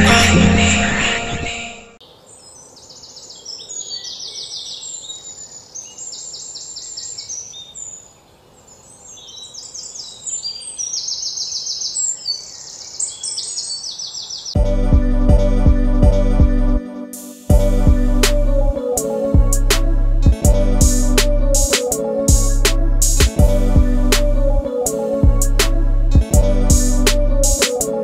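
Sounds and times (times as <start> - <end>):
background music: 0.0 - 2.0, 14.6 - 28.0.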